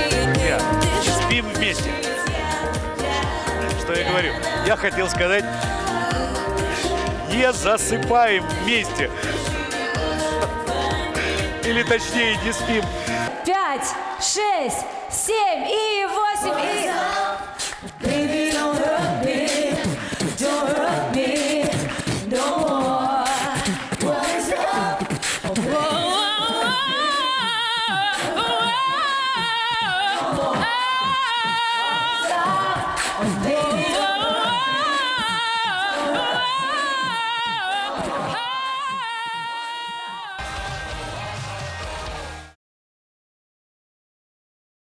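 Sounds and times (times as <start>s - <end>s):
two women singing a cappella: 0.0s - 7.4s, 8.2s - 41.0s.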